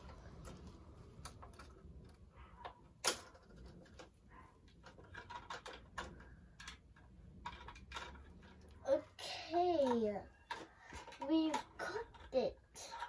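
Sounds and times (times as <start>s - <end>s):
plastic toy utensils clicking: 4.7s - 8.9s, 9.8s - 13.0s.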